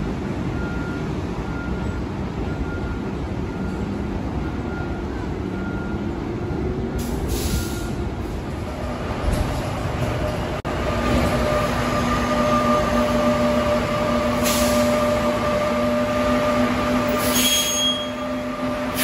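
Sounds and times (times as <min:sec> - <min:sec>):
bus engine whine and rumble: 0:00.0 - 0:19.0
air brake hisses: 0:07.0 - 0:08.0, 0:14.4 - 0:14.9, 0:17.1 - 0:18.2
short high beep: 0:17.3 - 0:18.2.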